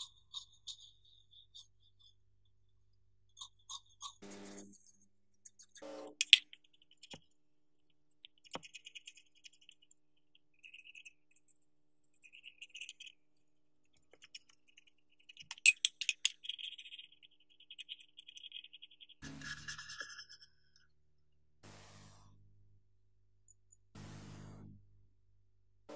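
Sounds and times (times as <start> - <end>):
tool clicking against metal: 5.5 - 7.2, 15.4 - 16.4.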